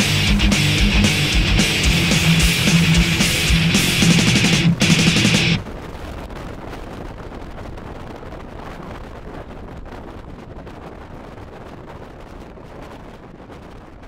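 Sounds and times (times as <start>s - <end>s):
wind over microphone: 5.6s - 14.0s.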